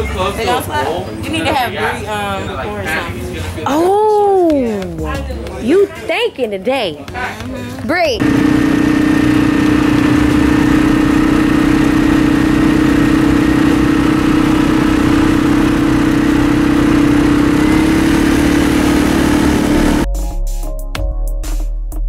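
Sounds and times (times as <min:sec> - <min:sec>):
atv engine whining: 0:08.2 - 0:20.1
electronic music with a beat: 0:20.0 - 0:22.0.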